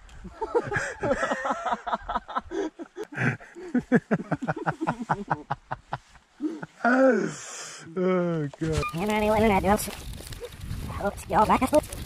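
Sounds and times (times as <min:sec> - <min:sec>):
man laughing: 0:00.3 - 0:07.3.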